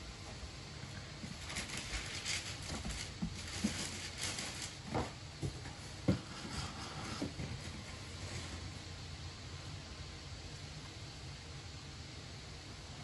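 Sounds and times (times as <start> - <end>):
dull knocks on cardboard: 4.8 - 6.3.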